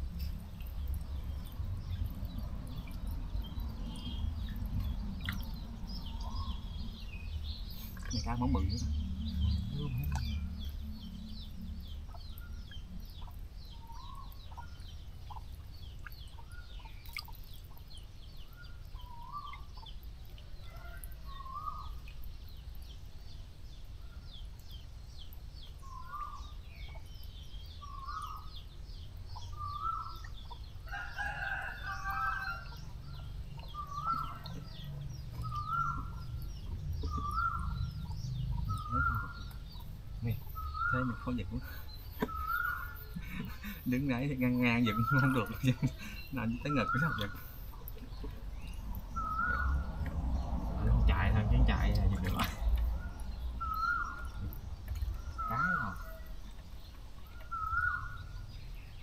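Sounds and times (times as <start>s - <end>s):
steady low rumble: 0.0s - 20.4s, 32.6s - 59.0s
chickens calling: 29.4s - 50.3s, 51.1s - 59.0s
rooster crowing: 30.8s - 32.9s.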